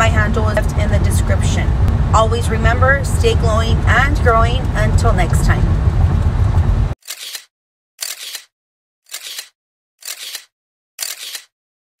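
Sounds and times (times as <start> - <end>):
camera shutter clicking: 7.0 - 8.5, 9.1 - 11.5.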